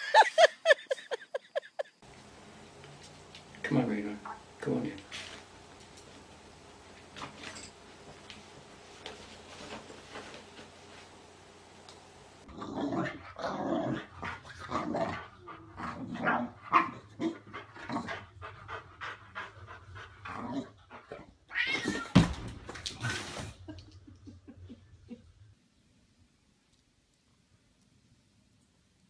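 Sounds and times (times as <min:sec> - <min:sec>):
cat crying: 0:21.5 - 0:22.2.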